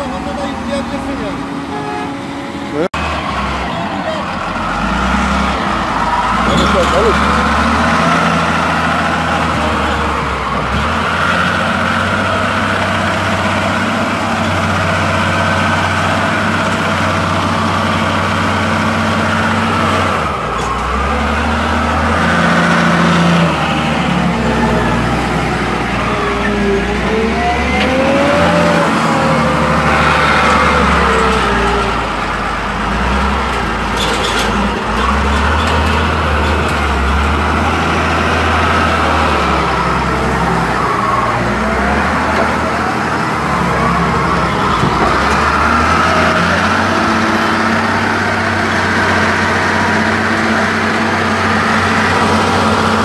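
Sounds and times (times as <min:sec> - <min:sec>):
diesel engine running: 0:00.0 - 0:53.0.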